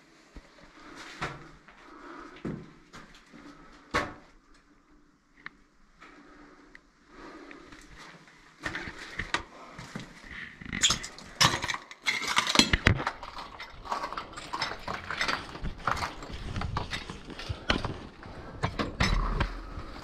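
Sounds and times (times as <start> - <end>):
clatter of knocks and clinks: 10.8 - 19.6.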